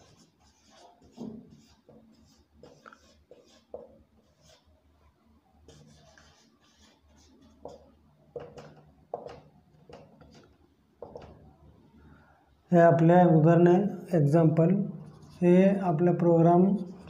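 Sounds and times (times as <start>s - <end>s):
handwriting strokes: 0.0s - 4.7s, 5.7s - 11.3s.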